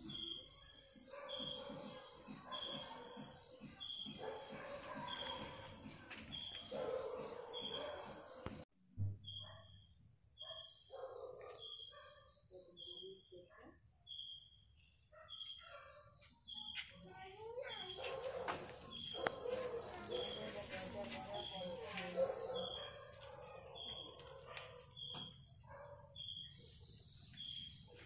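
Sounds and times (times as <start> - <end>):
cricket trill: 0.0 - 28.0
insect chirping: 0.0 - 28.0.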